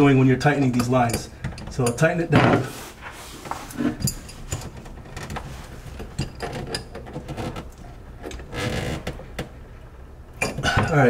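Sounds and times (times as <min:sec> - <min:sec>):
rustling scrape: 0:02.4 - 0:04.6, 0:05.4 - 0:06.2.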